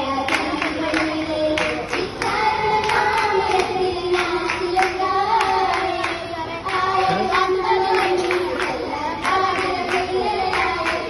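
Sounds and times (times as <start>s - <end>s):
girls singing in unison: 0.0s - 11.0s
rhythmic hand claps: 0.0s - 11.0s.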